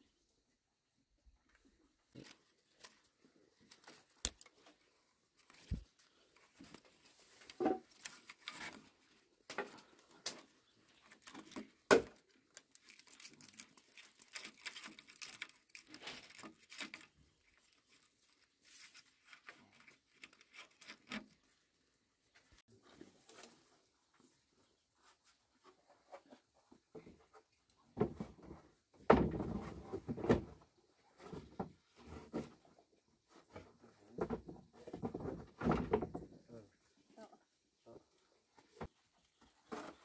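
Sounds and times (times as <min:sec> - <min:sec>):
rustling and scraping of strip: 0:02.1 - 0:27.5.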